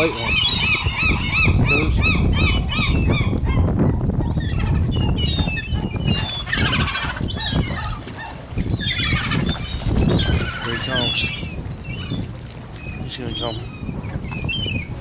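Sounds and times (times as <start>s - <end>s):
gulls calling: 0.0s - 15.0s
gulls squealing: 4.3s - 14.9s.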